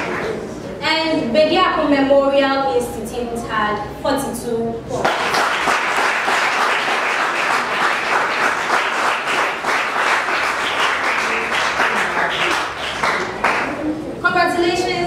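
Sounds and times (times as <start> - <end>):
audience applauding: 0.0 - 0.5, 5.0 - 13.9.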